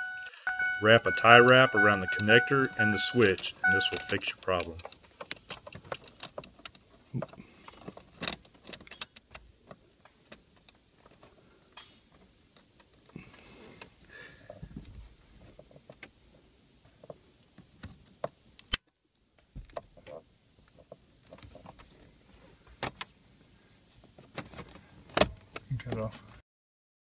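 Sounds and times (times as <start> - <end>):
zip tie plastic clicks: 8.2 - 9.4.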